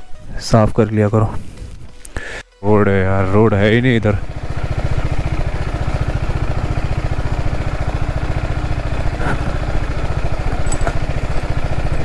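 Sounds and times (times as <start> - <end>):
motorcycle engine running at low speed: 3.3 - 12.0.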